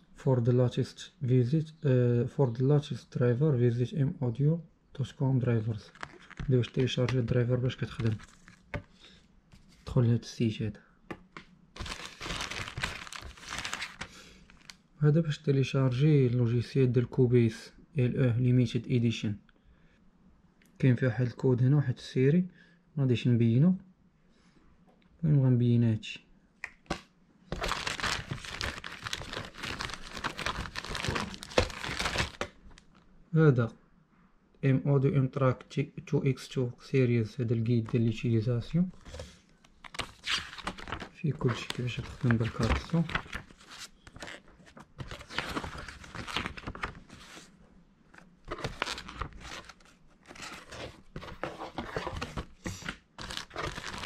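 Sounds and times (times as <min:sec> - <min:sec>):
plastic bag crinkling: 0:05.8 - 0:07.2, 0:11.8 - 0:14.8, 0:27.5 - 0:33.0, 0:48.5 - 0:54.0
paper pages rustling: 0:05.8 - 0:09.9, 0:11.8 - 0:14.8, 0:26.9 - 0:32.9, 0:39.0 - 0:47.5, 0:48.1 - 0:54.0.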